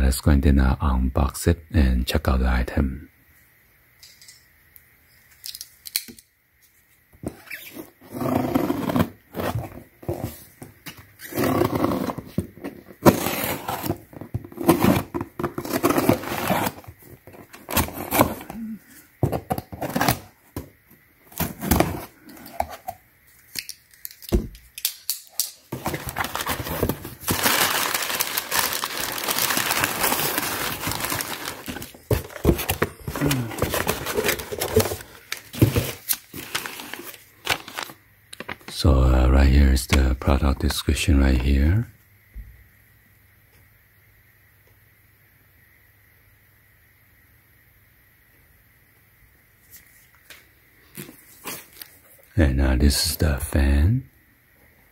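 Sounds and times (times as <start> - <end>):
tape tearing: 13.0 - 18.5, 23.5 - 38.7
packing paper rustling: 13.0 - 20.3, 25.7 - 38.8
box knocking: 30.8 - 35.0.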